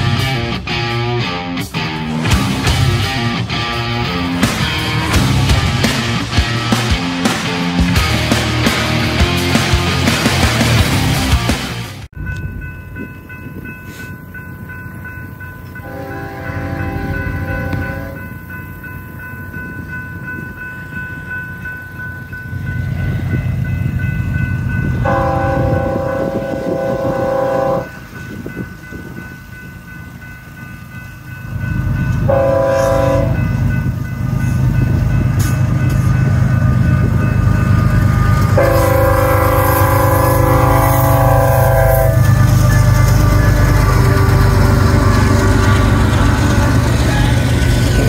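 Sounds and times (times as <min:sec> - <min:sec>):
locomotive and wheels rumbling: 0:00.0 - 0:48.0
locomotive air horn blasts: 0:15.8 - 0:18.2, 0:25.0 - 0:28.0, 0:32.3 - 0:33.5, 0:36.6 - 0:47.4.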